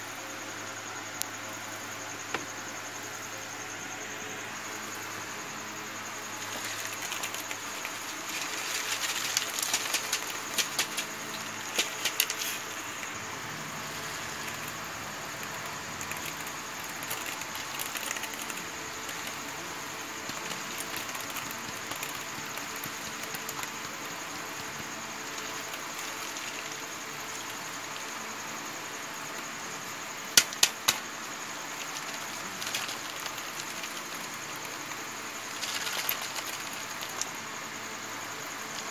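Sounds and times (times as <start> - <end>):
steady hiss: 0.0 - 38.9
rustling of dried pods: 6.4 - 13.0.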